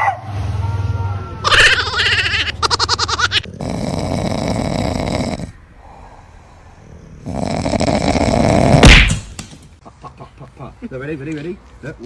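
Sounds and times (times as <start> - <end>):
dog snoring: 3.4 - 5.6, 6.9 - 8.9.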